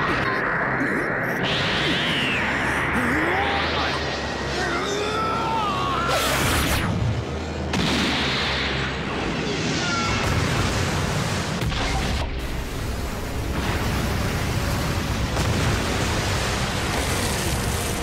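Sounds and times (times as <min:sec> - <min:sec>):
background music: 0:03.0 - 0:18.0
explosive rush of noise: 0:06.4 - 0:18.0.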